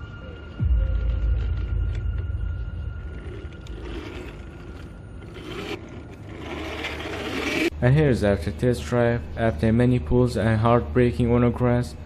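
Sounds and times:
toy car low rumble: 3.0s - 7.7s
tyres scraping on paving: 3.0s - 7.7s.

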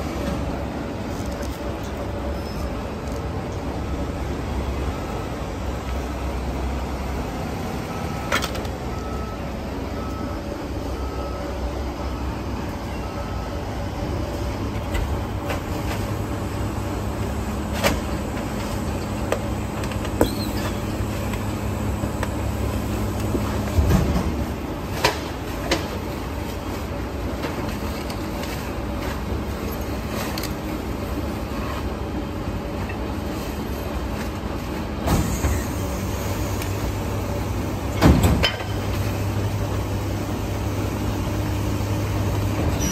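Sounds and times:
garbage truck engine drone: 0.0s - 42.9s
clunk: 38.0s - 39.1s.

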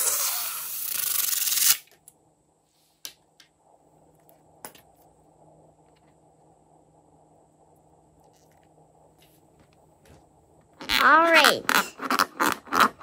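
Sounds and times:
slime balloon hissing: 0.0s - 1.7s.

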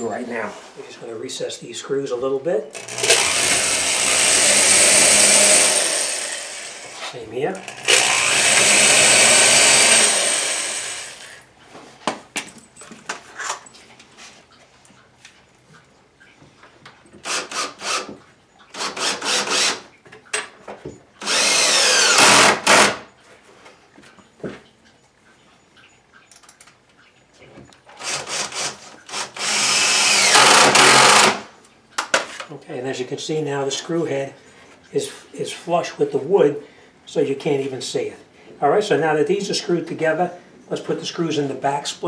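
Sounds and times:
drill cutting into wood: 2.8s - 7.0s, 7.6s - 11.4s, 17.2s - 18.2s, 18.8s - 19.9s, 21.2s - 23.1s, 28.0s - 31.5s.

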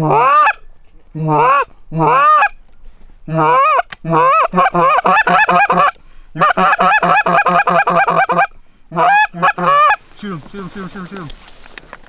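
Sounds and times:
goose honks and clucks: 0.0s - 0.6s, 1.2s - 2.6s, 3.3s - 10.0s.

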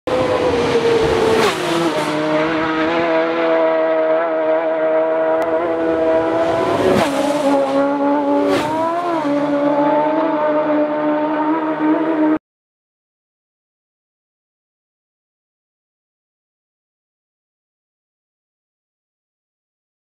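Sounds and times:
racing motorcycle engines high revs: 0.1s - 12.4s.

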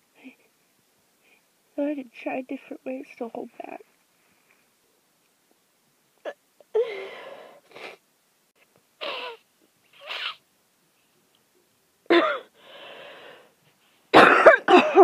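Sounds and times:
wheezy gasps: 6.7s - 8.0s, 12.5s - 13.6s
person stifling sneezes: 9.0s - 9.4s, 10.0s - 10.4s, 14.1s - 15.0s.

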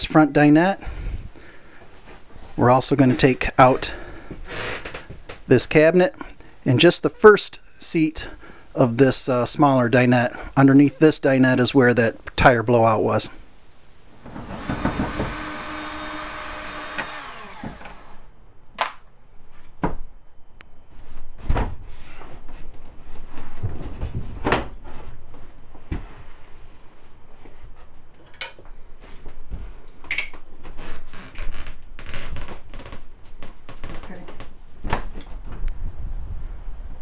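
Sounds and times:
power tool motor whining: 14.2s - 18.3s.

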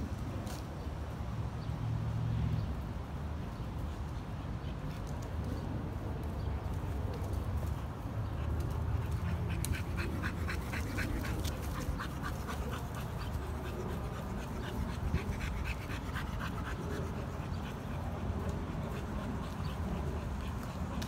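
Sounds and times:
dog panting: 7.6s - 21.0s.

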